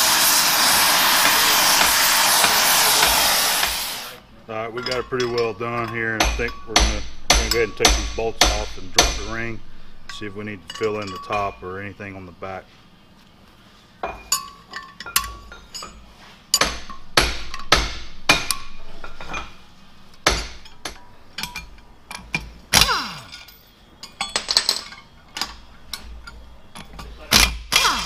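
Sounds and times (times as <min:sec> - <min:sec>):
wrench and bolts clinking: 0:04.7 - 0:12.0, 0:14.0 - 0:27.6.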